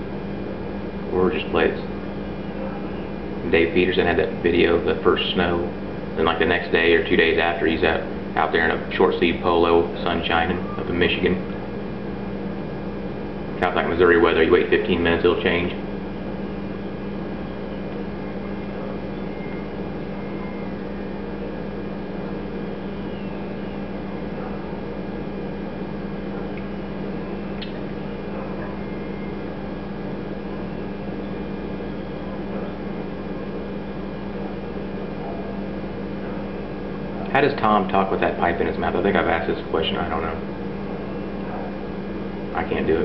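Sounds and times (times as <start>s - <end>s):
steady background hum: 0.0s - 43.0s
faint click: 27.6s - 27.8s.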